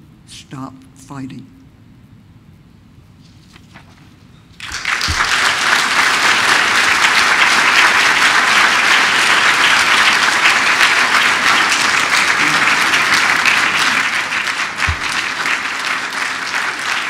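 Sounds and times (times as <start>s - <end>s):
audience applauding: 4.6s - 17.0s.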